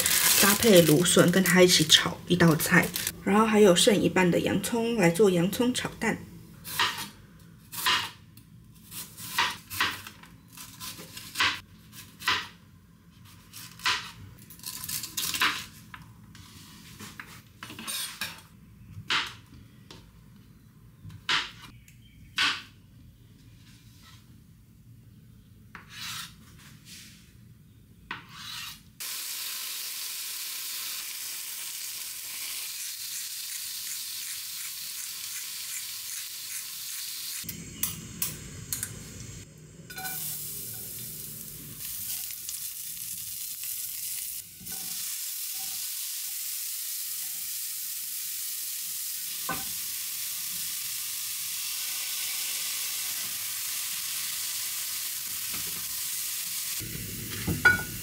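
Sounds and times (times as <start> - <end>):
vegetables sizzling in oil: 0.0 - 3.2, 29.0 - 58.0.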